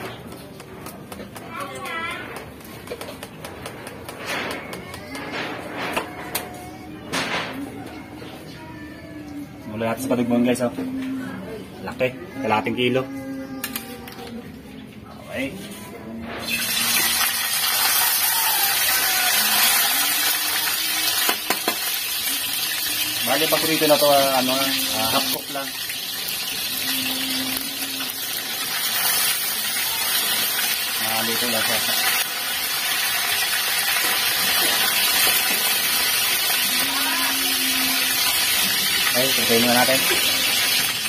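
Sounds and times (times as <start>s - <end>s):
fish sizzling in hot oil: 16.4s - 41.0s.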